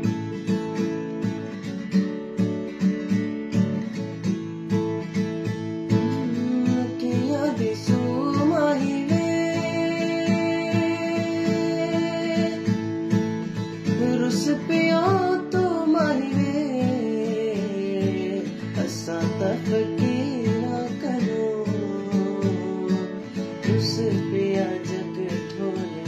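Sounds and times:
acoustic guitar strumming: 0:00.0 - 0:26.0
young man singing: 0:05.9 - 0:26.0.

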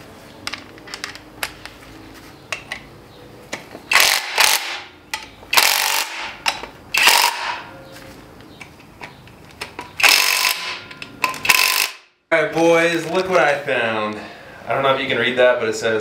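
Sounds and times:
impact wrench hammering: 0:03.9 - 0:07.7, 0:09.8 - 0:12.1.

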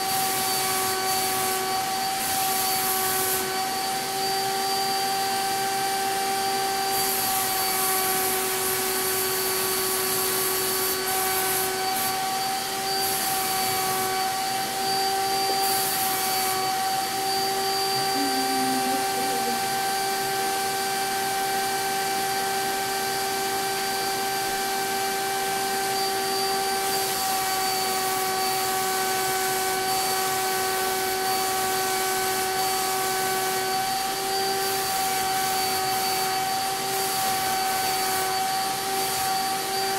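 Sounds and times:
spray gun hiss: 0:00.0 - 0:39.9
turbine sprayer whine: 0:00.0 - 0:39.9.

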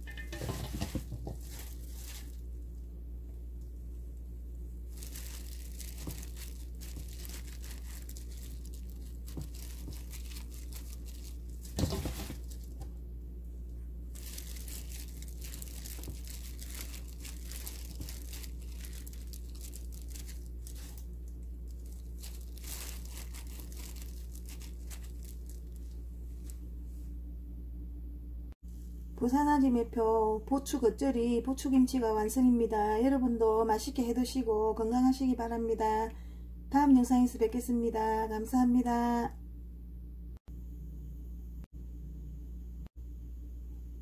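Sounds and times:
plastic glove rustling: 0:00.0 - 0:27.2
steady low hum: 0:00.0 - 0:44.0.

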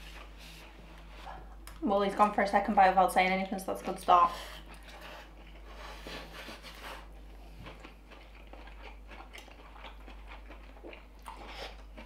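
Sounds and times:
chewing: 0:03.7 - 0:12.0.

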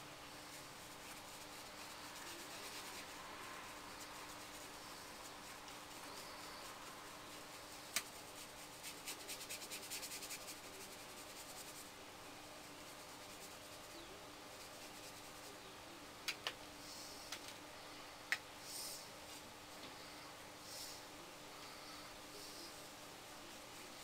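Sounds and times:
paintbrush rubbing on paper: 0:00.4 - 0:15.7.

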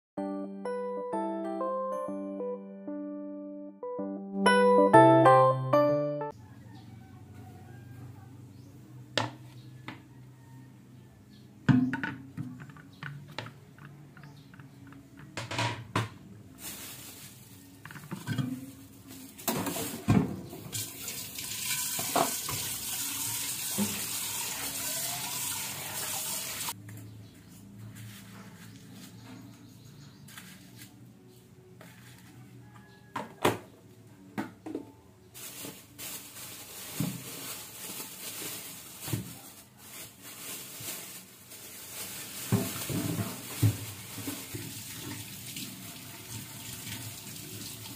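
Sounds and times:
tap water running into sink: 0:20.8 - 0:26.7, 0:44.3 - 0:47.9.

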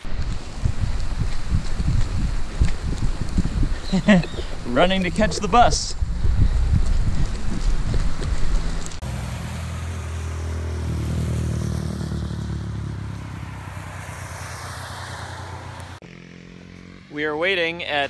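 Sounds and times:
wind buffeting microphone: 0:00.0 - 0:09.0
vehicle engine hum: 0:00.0 - 0:17.6
tyre hiss on wet road: 0:09.0 - 0:10.2.

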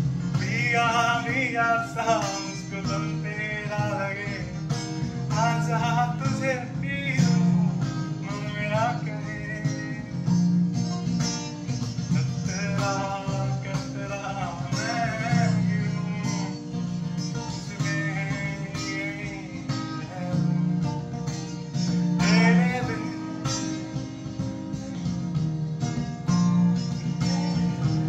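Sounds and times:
acoustic guitar strumming: 0:00.0 - 0:28.0
man singing: 0:00.3 - 0:10.3, 0:12.1 - 0:20.6, 0:22.2 - 0:24.0.

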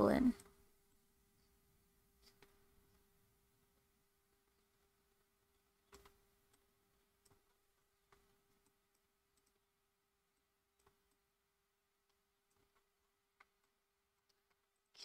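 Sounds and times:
computer mouse clicks: 0:05.8 - 0:09.7, 0:10.8 - 0:11.2.

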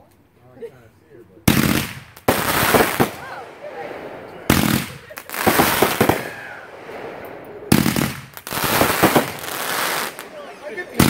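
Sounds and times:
firework bangs: 0:01.4 - 0:11.0
rapid firework reports: 0:01.4 - 0:11.0
firework crackle and hiss: 0:01.5 - 0:11.0.

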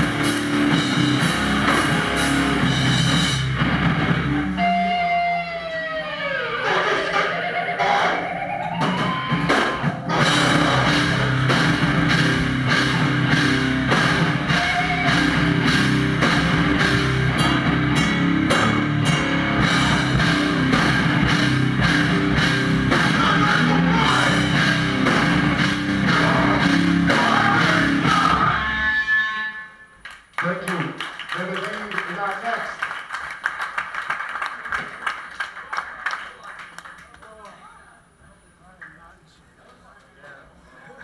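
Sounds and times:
live heavy rock band: 0:00.0 - 0:29.7
rapid drum hits: 0:08.8 - 0:28.5.

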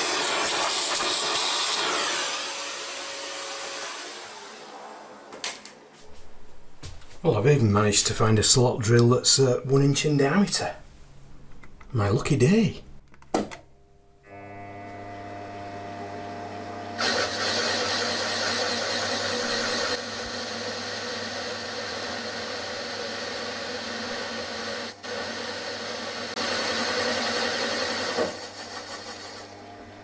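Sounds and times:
milling machine motor hum: 0:14.3 - 0:30.0
rough metal cutting noise: 0:17.0 - 0:29.6.

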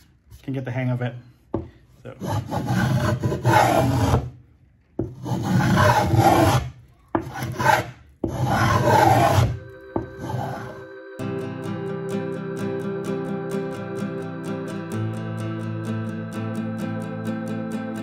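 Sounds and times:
spokeshave shaving wood: 0:02.1 - 0:04.3, 0:05.1 - 0:09.6
quiet music: 0:08.4 - 0:18.0.

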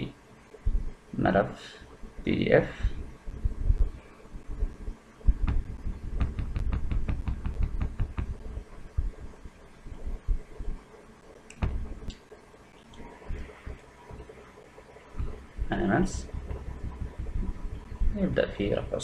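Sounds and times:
muffled thumps on microphone: 0:02.8 - 0:10.8, 0:11.5 - 0:12.1, 0:15.1 - 0:18.2.

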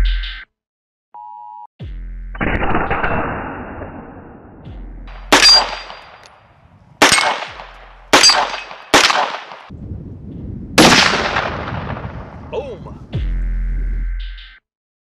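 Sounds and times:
rifle shots: 0:05.1 - 0:09.7, 0:10.8 - 0:12.4.

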